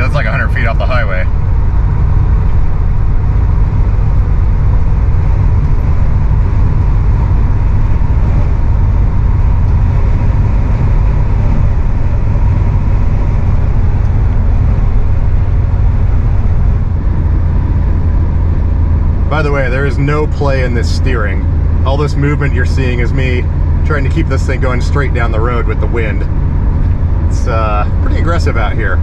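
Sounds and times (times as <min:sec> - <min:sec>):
road and wind noise in car: 0:00.0 - 0:29.0.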